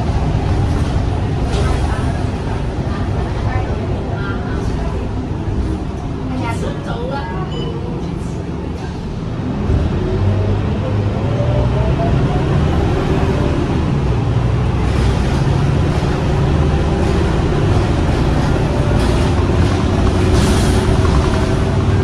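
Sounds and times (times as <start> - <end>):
bus engine whine under load: 0.0 - 22.0
road noise: 0.0 - 22.0.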